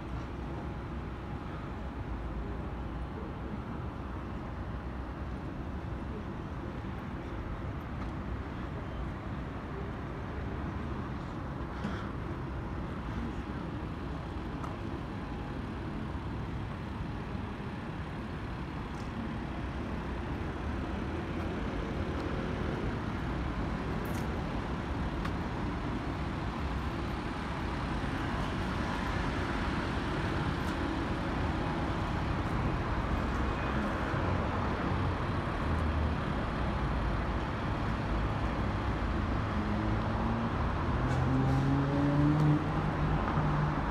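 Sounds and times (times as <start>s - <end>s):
passing cars and buses: 0.0s - 43.9s.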